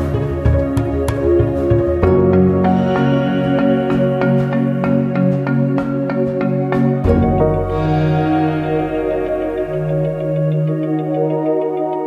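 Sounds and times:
background music with sustained notes: 0.0 - 12.0
held low tone: 7.0 - 11.1.

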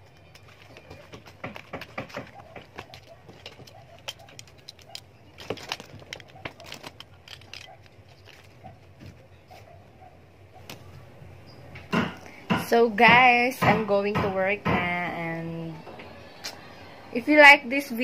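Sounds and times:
small items clicking and knocking: 0.0 - 9.2
bag rustling: 2.2 - 9.8.

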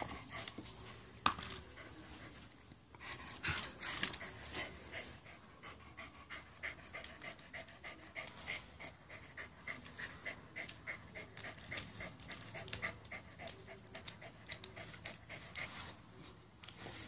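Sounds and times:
dog panting: 3.0 - 16.1.

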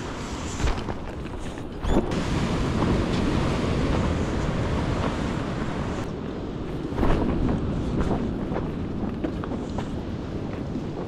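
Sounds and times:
wind buffeting microphone: 0.0 - 11.0
surf washing over rocks: 2.2 - 11.0.

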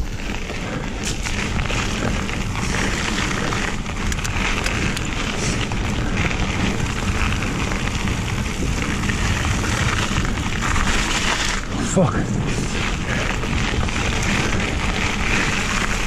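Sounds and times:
tyres rolling on gravel: 0.0 - 16.0
wind buffeting camera: 0.0 - 16.0
sharp clicks of grit: 1.0 - 8.0.

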